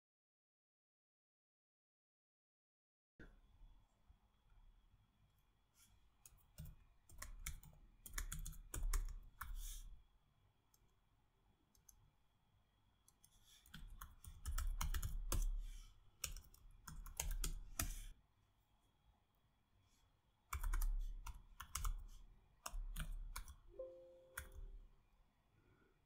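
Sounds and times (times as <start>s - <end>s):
typing on computer keyboard: 6.2s - 9.6s, 13.1s - 18.1s, 20.5s - 23.7s, 24.3s - 24.7s.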